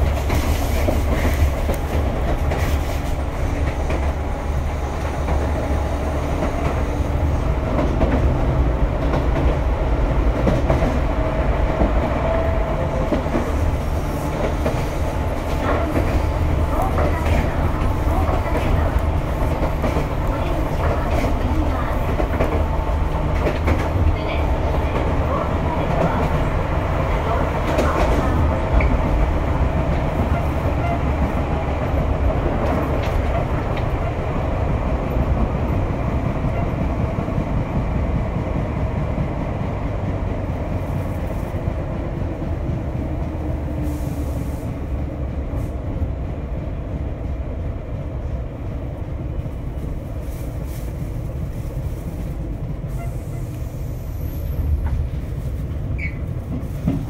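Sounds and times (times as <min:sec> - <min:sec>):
train motors and wheels rumbling: 0:00.0 - 0:57.0.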